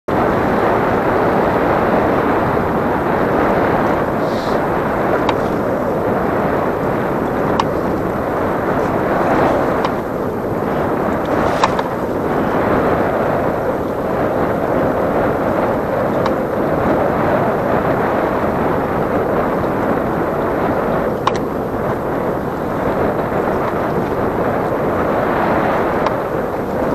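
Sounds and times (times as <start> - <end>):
sea noise: 0.1 - 26.9
wind on microphone: 0.1 - 26.9
light sharp ticks: 3.8 - 12.6, 21.2 - 22.0, 25.8 - 26.9.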